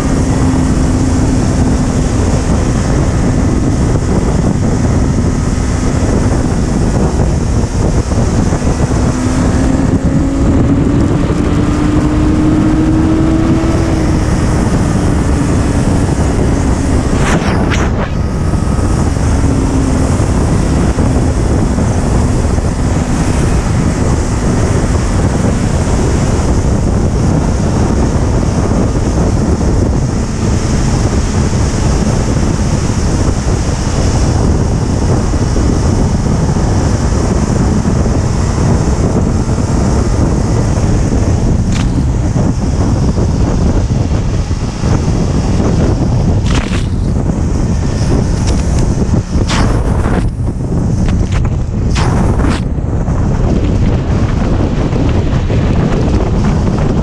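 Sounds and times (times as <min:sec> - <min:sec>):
motorcycle engine steady tone: 0:00.0 - 0:57.0
wind rushing over microphone: 0:00.0 - 0:57.0
short whoosh: 0:12.9 - 0:21.1, 0:44.8 - 0:54.4.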